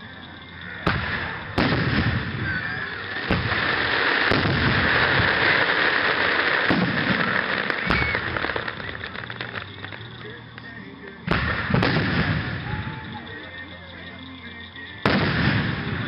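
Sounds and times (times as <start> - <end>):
firework shells bursting: 0.8 - 13.6.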